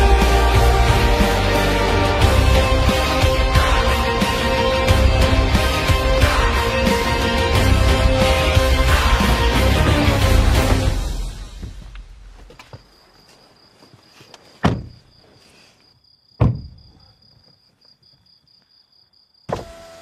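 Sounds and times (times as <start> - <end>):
music: 0.0 - 12.1
crickets chirping: 11.4 - 20.0
car doors shutting: 19.5 - 20.0.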